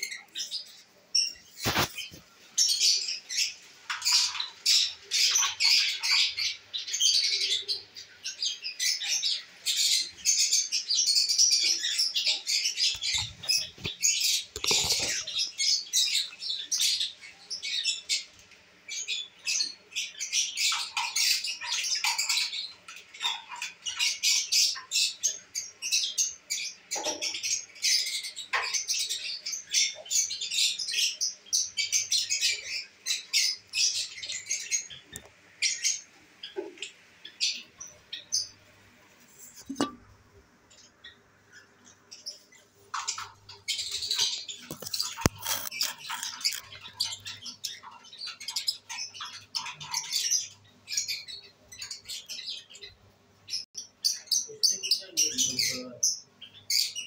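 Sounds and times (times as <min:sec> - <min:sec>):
lovebirds chattering: 0:00.0 - 0:57.0.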